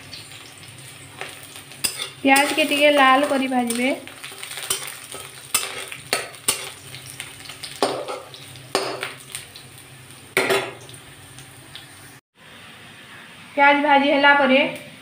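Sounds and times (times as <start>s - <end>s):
onions sizzling in hot oil: 0.0s - 15.0s
spatula scraping and knocking pan: 1.8s - 6.9s, 7.7s - 9.2s.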